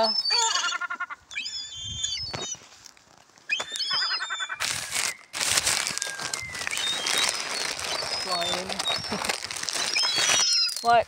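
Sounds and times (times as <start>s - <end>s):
gulls calling: 0.0s - 2.6s, 3.5s - 11.0s
loud rustling: 4.6s - 10.8s.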